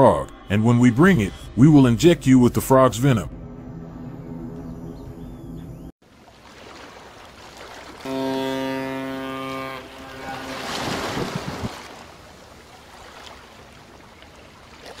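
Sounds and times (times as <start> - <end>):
wind: 0.0 - 15.0
sea noise: 6.0 - 15.0
ship's horn low blast: 8.0 - 11.9.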